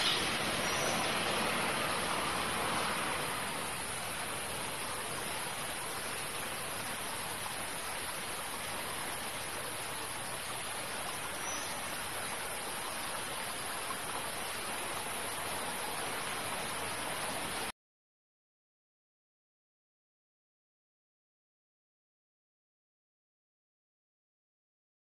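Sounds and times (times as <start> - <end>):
outdoor background hiss: 0.0 - 17.7.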